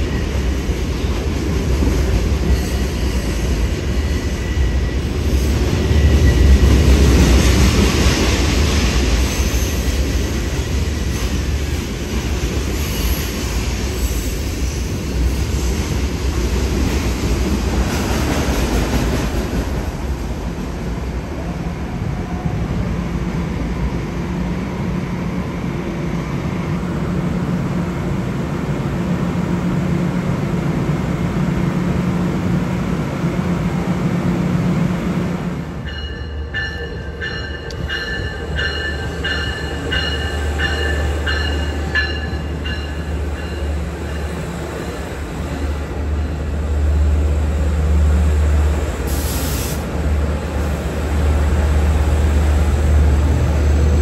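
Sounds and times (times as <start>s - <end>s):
diesel train rumbling: 0.0s - 54.0s
electric train humming: 0.0s - 54.0s
bell ringing in even strokes: 35.8s - 43.7s
short high hiss or squeal: 49.1s - 49.8s.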